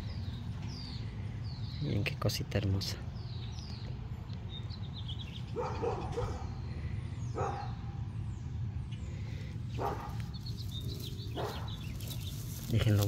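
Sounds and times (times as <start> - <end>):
birds chirping: 0.0 - 13.0
dog barking: 5.5 - 6.6, 7.4 - 7.8, 9.8 - 10.2, 11.3 - 11.8.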